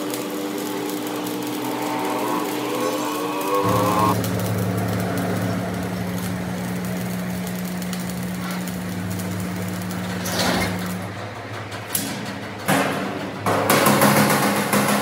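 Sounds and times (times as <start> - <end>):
arc welding crackling hiss: 0.0 - 11.2
steady electrical hum: 0.0 - 14.0.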